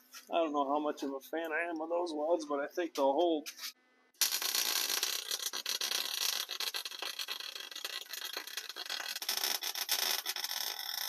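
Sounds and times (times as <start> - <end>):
arc welding crackle: 4.2 - 11.0.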